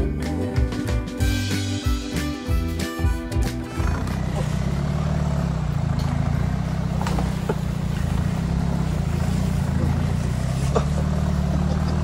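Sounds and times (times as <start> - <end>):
car engine running at low revs: 3.2 - 12.0.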